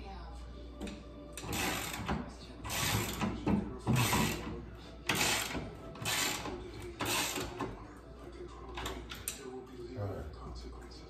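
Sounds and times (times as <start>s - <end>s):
ratchet wrench strokes: 1.4s - 2.1s, 2.7s - 4.5s, 5.1s - 7.6s.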